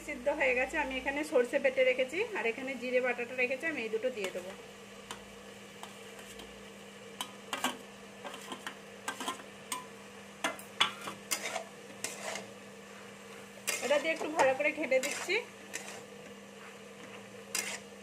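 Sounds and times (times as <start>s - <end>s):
metal spatula scraping metal: 7.5s - 9.4s, 11.0s - 13.0s, 13.6s - 18.0s.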